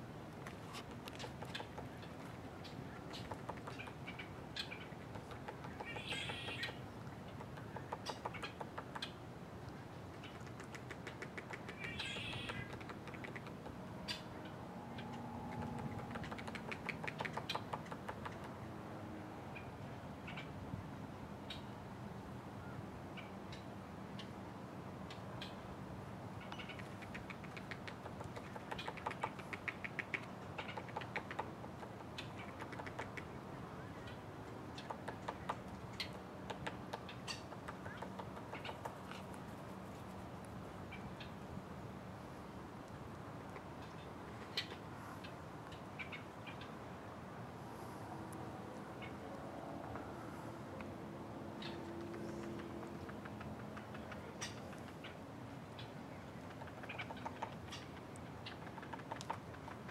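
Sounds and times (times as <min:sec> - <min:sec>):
woodpecker pecking: 0:00.4 - 0:09.2, 0:10.1 - 0:14.2, 0:15.0 - 0:18.6, 0:26.5 - 0:33.4, 0:34.6 - 0:40.4, 0:51.6 - 0:55.2, 0:56.5 - 0:59.9
short bird calls: 0:11.7 - 0:12.7.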